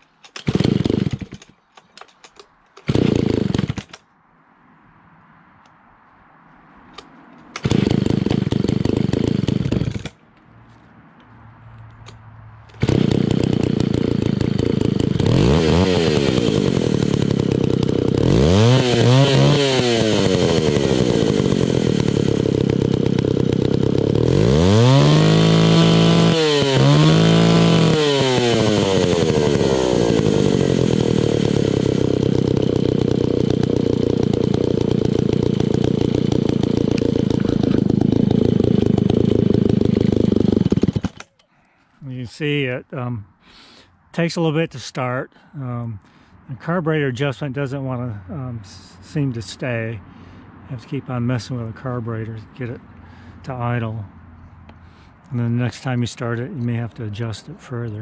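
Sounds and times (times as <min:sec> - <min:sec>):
chainsaw engine revving and idling: 0:00.3 - 0:01.5, 0:02.3 - 0:04.0, 0:07.5 - 0:10.2, 0:12.1 - 0:41.3.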